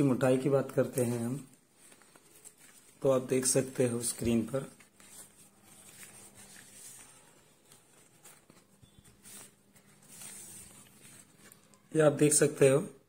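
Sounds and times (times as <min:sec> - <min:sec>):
faint rustling: 0:03.8 - 0:11.9.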